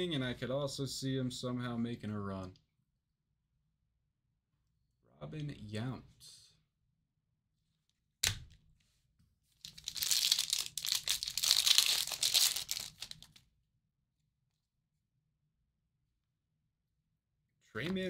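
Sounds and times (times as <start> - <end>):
plastic wrapper tearing and crumpling: 9.6 - 13.4.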